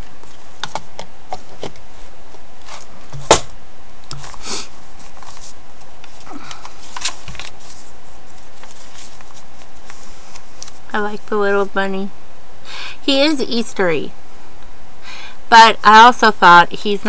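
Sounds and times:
paper pages rustling: 0.0 - 3.4, 4.1 - 10.9.

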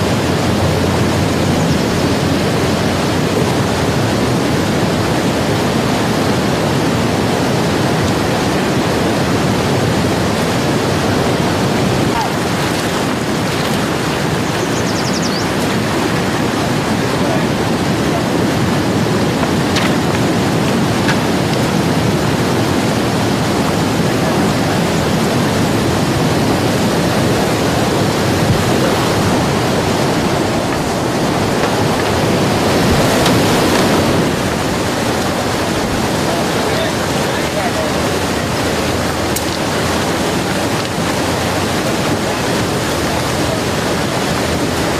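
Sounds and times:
river rapids rushing: 0.0 - 44.9.

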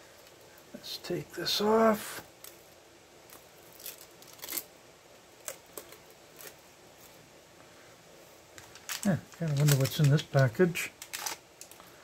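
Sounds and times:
plastic film crinkling: 2.3 - 4.7, 5.3 - 7.2, 8.5 - 12.0.

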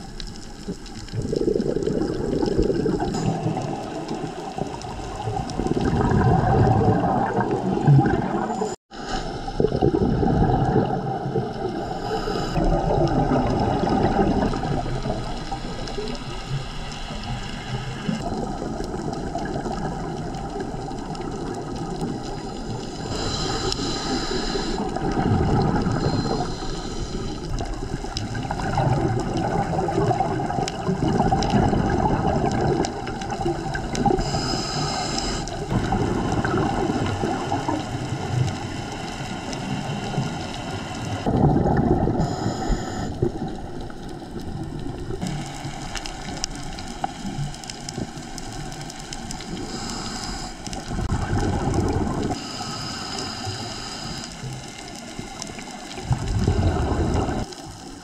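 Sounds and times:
bubbles gurgling underwater: 0.0 - 52.5, 54.4 - 58.0
regulator hiss: 22.4 - 25.0, 25.9 - 27.8, 34.1 - 35.7, 42.2 - 43.3, 49.4 - 50.9, 52.4 - 56.0.

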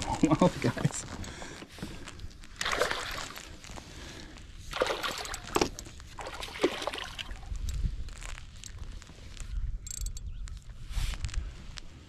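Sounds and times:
fish splashing in water: 2.5 - 3.6, 4.7 - 7.6.

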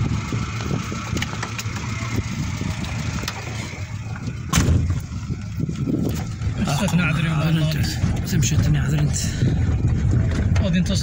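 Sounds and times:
engine idling: 0.0 - 11.0
truck door slamming: 4.4 - 5.0.

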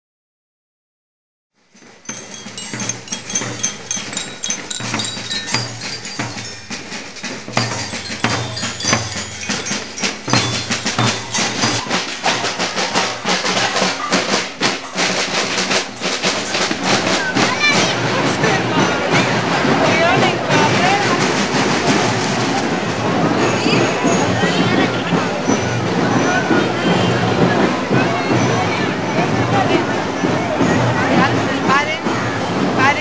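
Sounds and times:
snare drums marching beat: 1.8 - 33.0
high ringing notes: 2.0 - 13.3.

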